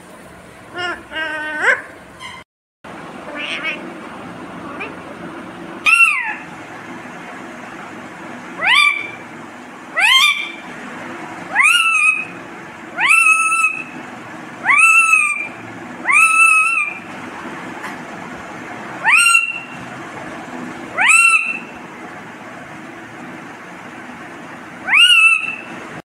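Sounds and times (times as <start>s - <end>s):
parakeet calling: 0.7s - 2.4s, 3.3s - 3.9s, 5.8s - 6.5s, 8.6s - 9.3s, 9.9s - 10.7s, 11.5s - 17.1s, 19.0s - 19.9s, 20.9s - 21.8s, 24.8s - 25.8s.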